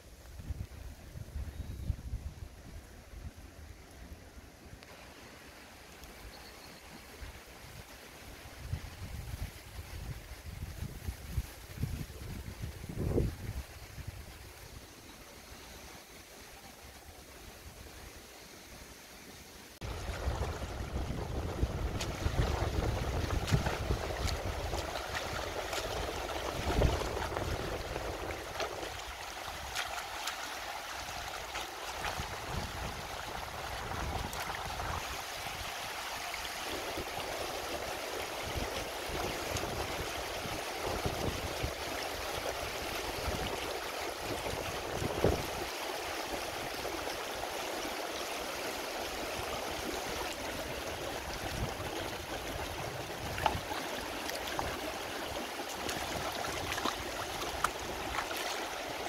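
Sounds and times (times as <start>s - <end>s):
river rippling over rocks: 19.3s - 59.0s
splashes in water: 19.8s - 37.3s, 49.6s - 59.0s.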